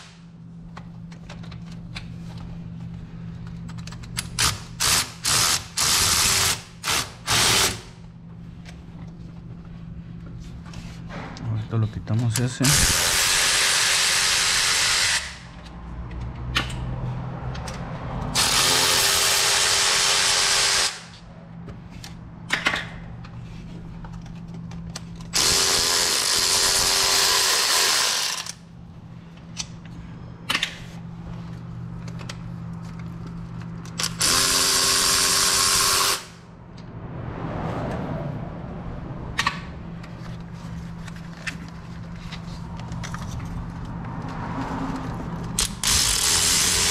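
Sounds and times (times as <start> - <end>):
electric ratchet motor whine: 12.7 - 15.5, 25.4 - 28.6, 34.0 - 36.4, 45.6 - 46.9
tools clicking: 45.0 - 46.9.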